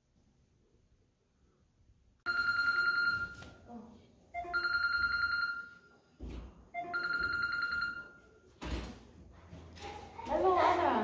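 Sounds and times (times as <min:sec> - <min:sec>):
phone ringing: 0:02.2 - 0:03.7, 0:04.3 - 0:06.1, 0:06.7 - 0:08.5.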